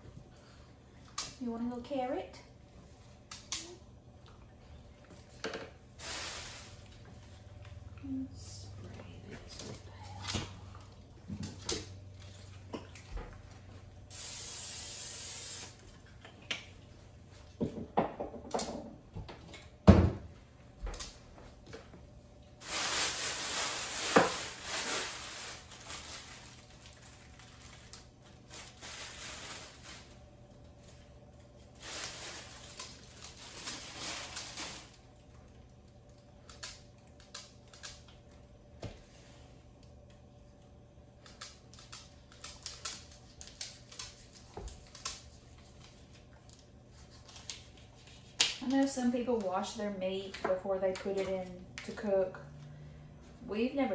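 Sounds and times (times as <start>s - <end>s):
plastic bag and wrapping rustling: 6.0s - 8.3s, 22.6s - 36.2s.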